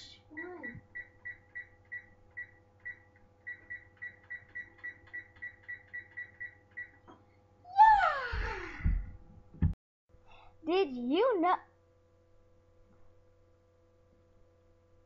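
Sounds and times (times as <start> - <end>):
oven keypad beeping: 0.4 - 7.0.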